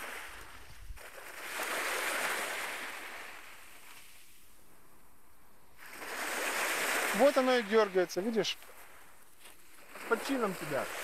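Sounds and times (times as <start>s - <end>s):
small wave washing up shore: 0.0s - 4.6s, 5.7s - 11.0s.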